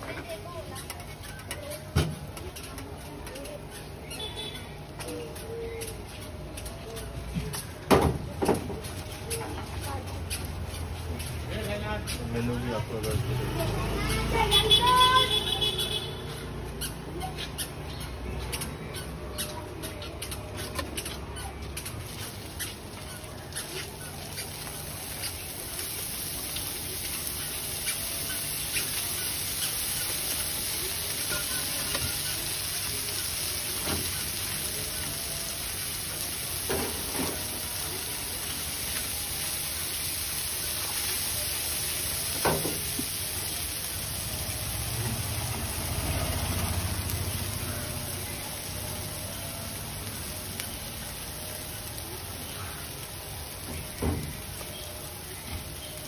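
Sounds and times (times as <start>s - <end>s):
batter sizzling on griddle: 21.8s - 56.0s.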